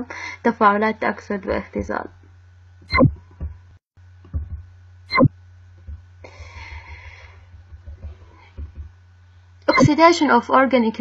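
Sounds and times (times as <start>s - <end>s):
steady low hum: 0.0s - 11.0s
sharp knocks: 4.3s - 9.0s
faint taps: 5.8s - 9.0s.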